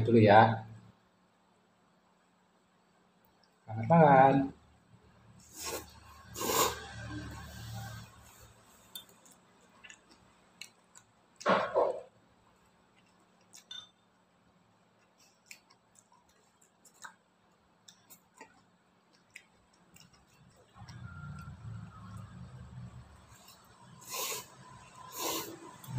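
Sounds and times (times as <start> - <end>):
soft chewing: 3.1 - 3.7, 5.3 - 11.5, 12.3 - 25.9
fork scraping noodle bowl: 5.4 - 8.0.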